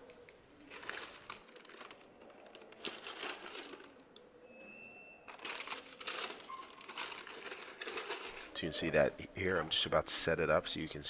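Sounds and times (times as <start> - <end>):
tissue paper rustling: 0.6 - 4.1, 5.3 - 8.6.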